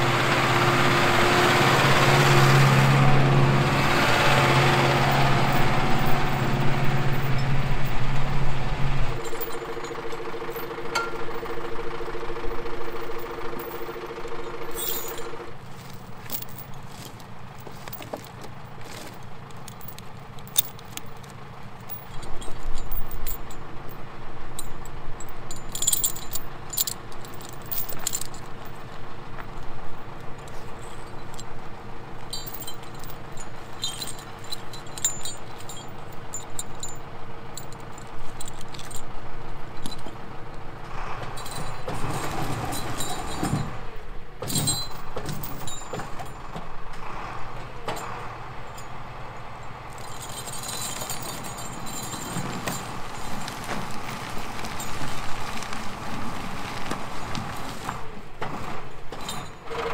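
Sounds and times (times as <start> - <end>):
tractor diesel engine running: 0.0 - 59.9
chains clinking and rattling: 4.9 - 29.0, 30.4 - 40.2, 41.3 - 46.5, 48.0 - 49.0, 49.9 - 54.1, 59.2 - 59.7.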